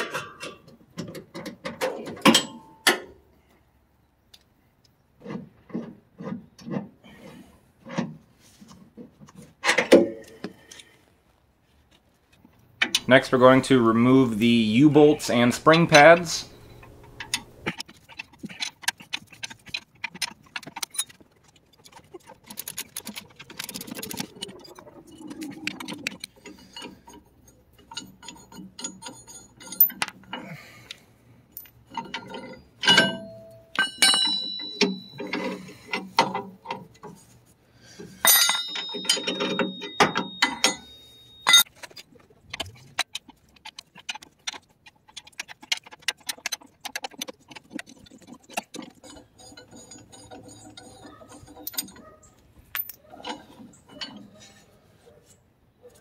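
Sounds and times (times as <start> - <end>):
metal clinks and knocks: 0.0 - 3.1, 15.3 - 30.5, 31.5 - 37.3, 38.1 - 55.4.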